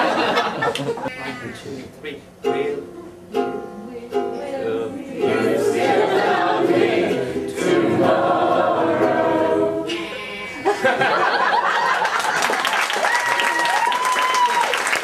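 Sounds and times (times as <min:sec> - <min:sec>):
voices singing together: 0:02.5 - 0:11.0.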